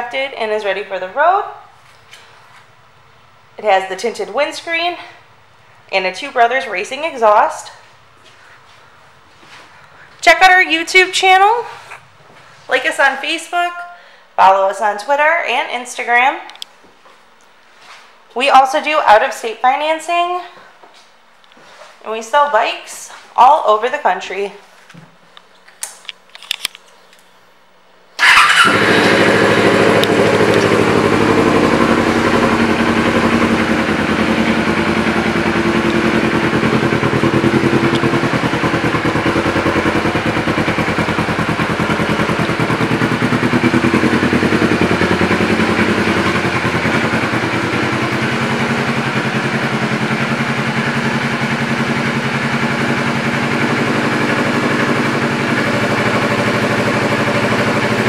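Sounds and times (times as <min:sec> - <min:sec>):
motorcycle engine starting and running: 0:28.2 - 0:58.0.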